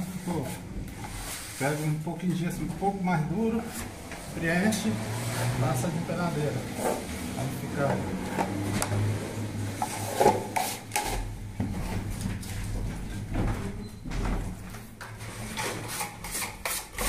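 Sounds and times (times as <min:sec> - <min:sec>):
tools scraping and tapping: 0:09.7 - 0:12.6, 0:15.0 - 0:17.0
plaster float scraping: 0:09.8 - 0:11.9, 0:15.2 - 0:17.0.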